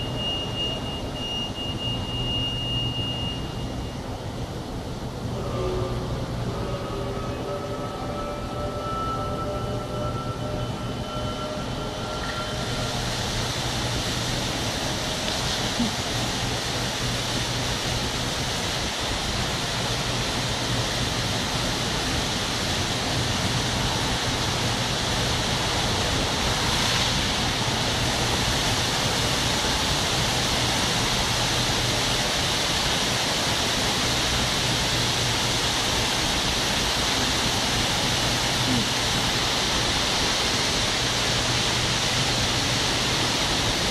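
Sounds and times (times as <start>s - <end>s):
low steady hum: 0.0s - 43.9s.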